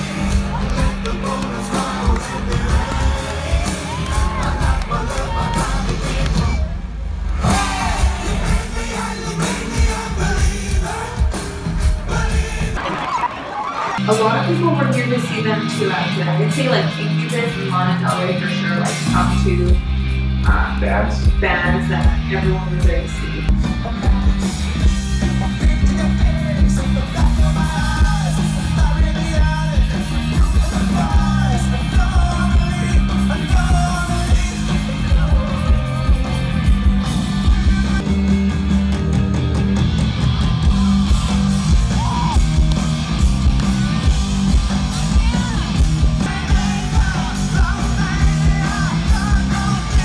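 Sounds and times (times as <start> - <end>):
lead singer singing: 0.0 - 6.8, 7.4 - 12.8, 23.7 - 38.2, 44.9 - 50.0
live rock band playing: 0.0 - 50.0.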